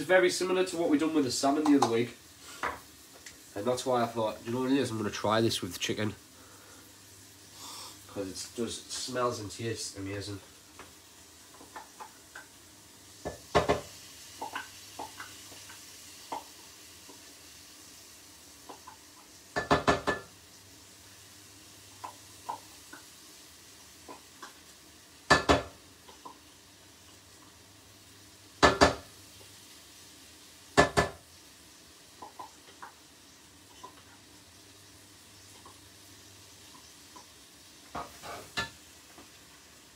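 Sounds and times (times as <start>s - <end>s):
sharp knocks against pot: 25.3s - 25.7s.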